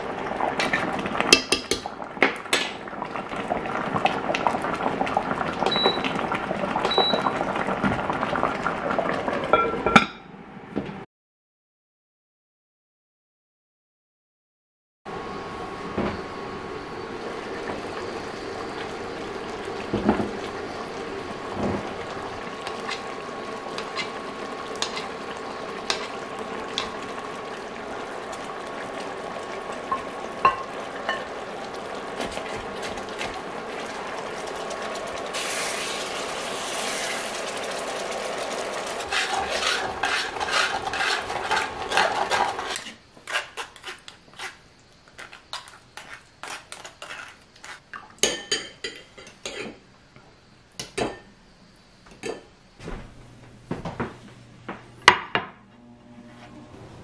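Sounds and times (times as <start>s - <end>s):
sauce simmering: 0.0s - 9.5s, 15.1s - 49.6s
utensils clinking on cast-iron pot: 24.8s - 25.1s, 29.9s - 31.3s, 45.2s - 49.8s, 52.2s - 52.5s
spoon scraping metal sieve: 39.0s - 44.6s, 45.2s - 47.8s
steady hum: 52.8s - 57.0s.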